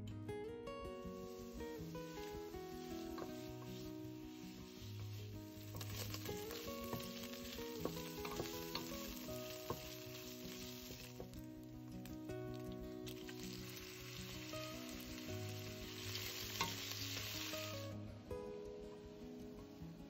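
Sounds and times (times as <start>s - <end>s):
background music: 0.0s - 20.0s
lard sizzling in a pot: 1.0s - 18.3s
wooden spatula scraping: 1.2s - 11.4s.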